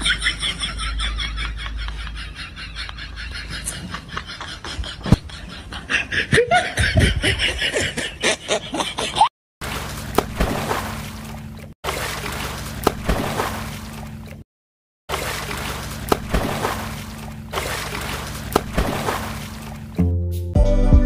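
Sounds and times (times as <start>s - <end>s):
snickering laughter: 0.0s - 9.3s.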